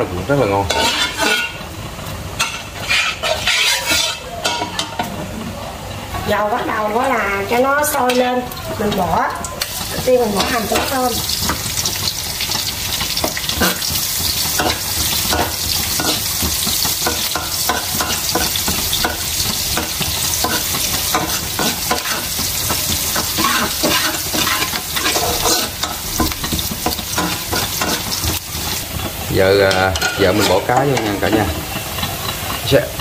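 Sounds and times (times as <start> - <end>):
onion and garlic sizzling in oil: 0.0 - 33.0
metal spatula scraping a pan: 0.6 - 1.7, 2.4 - 5.1, 10.0 - 32.7.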